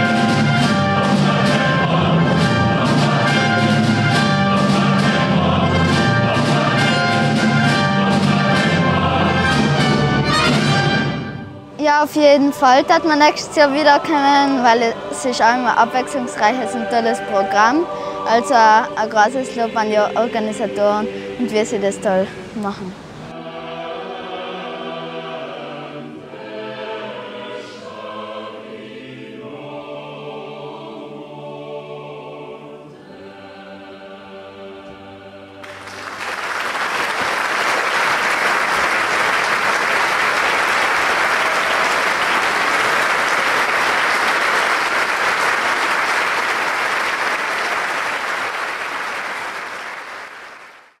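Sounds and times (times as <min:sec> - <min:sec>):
choir singing with orchestra: 0:00.0 - 0:36.0
audience applause: 0:35.6 - 0:51.0.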